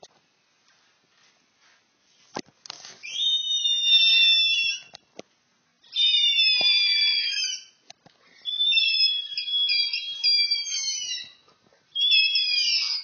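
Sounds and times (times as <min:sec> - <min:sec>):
shrill high-pitched screams: 0:03.0 - 0:05.0, 0:05.8 - 0:07.8, 0:08.4 - 0:11.4, 0:12.0 - 0:13.0.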